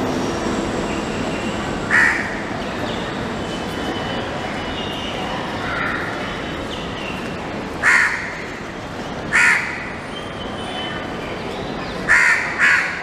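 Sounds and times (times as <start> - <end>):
steady background noise: 0.0 - 13.0
crow cawing: 1.9 - 2.4, 7.8 - 8.4, 9.4 - 9.8, 12.1 - 13.0.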